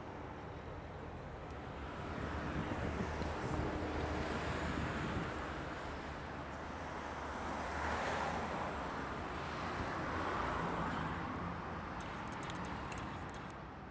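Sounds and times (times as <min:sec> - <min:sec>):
wind buffeting microphone: 0:02.1 - 0:05.6.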